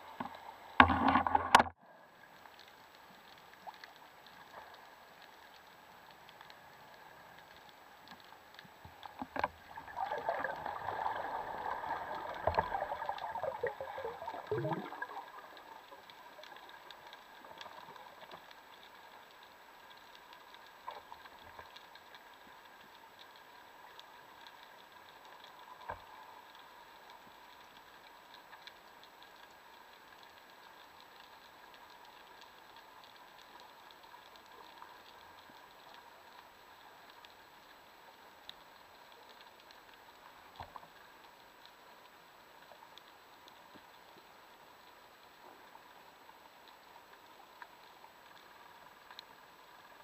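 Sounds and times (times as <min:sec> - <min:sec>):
faint steady hum: 0:00.0 - 0:50.0
gurgling underwater rush: 0:09.6 - 0:15.8.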